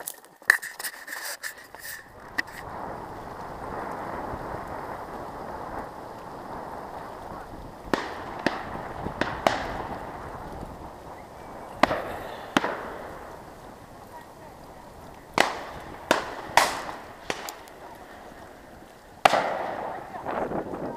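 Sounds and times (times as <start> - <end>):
steady rushing noise: 1.7 - 20.9
shotgun shots: 11.8 - 13.0, 15.4 - 17.9, 19.2 - 20.0.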